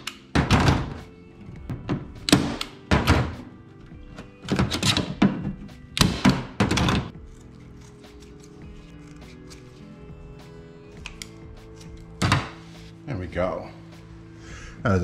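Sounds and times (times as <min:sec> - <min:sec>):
background music: 0:00.0 - 0:15.0
staple gun firing: 0:02.2 - 0:03.3.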